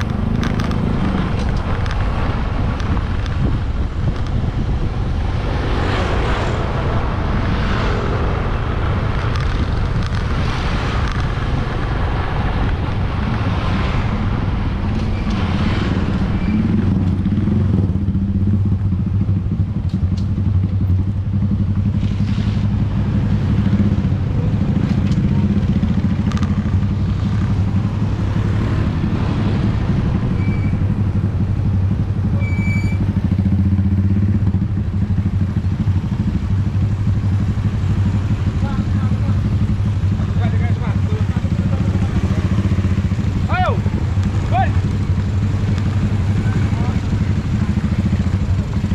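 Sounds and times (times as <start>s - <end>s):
wind noise: 0.0s - 19.2s, 25.8s - 33.2s
motorcycle engine running: 15.7s - 48.9s
short high beeps: 32.4s - 33.0s.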